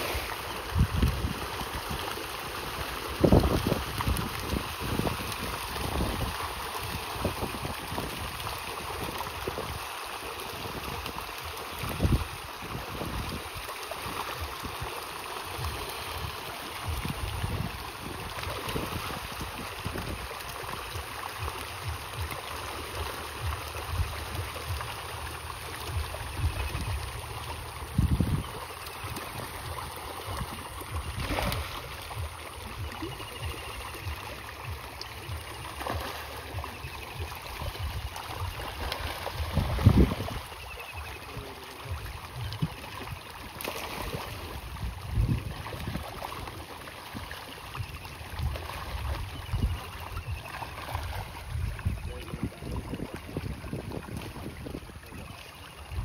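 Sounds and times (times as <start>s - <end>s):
water gurgling and splashing: 0.0s - 56.0s.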